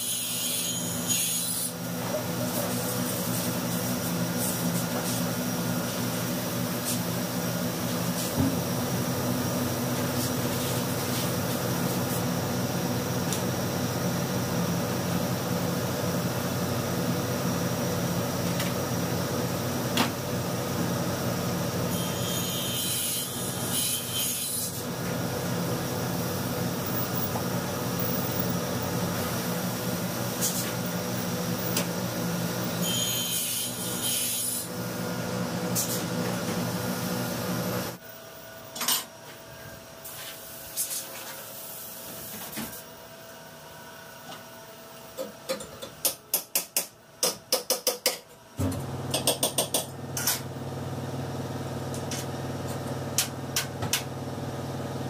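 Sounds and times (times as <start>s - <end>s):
saw blade cutting board: 0.0s - 1.8s, 21.9s - 24.8s, 32.8s - 34.7s.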